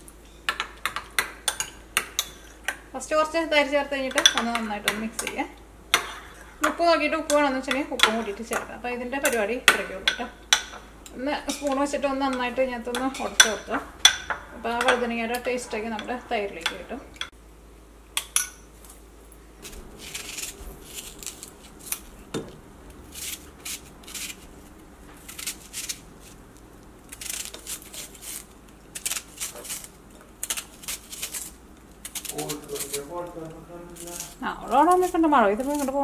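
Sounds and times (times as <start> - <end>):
knife slicing onions: 19.6 - 26.4, 27.1 - 36.0.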